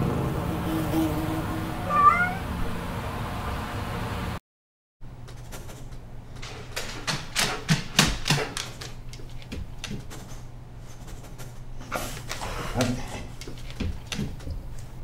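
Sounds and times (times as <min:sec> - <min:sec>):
dog claws clicking on wooden floor: 0:05.3 - 0:11.6, 0:12.3 - 0:15.0.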